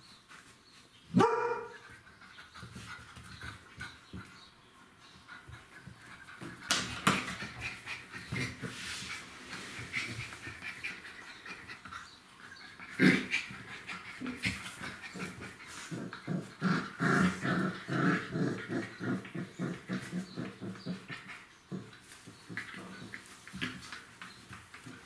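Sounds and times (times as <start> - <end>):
puppies growling and yapping: 5.1 - 25.0.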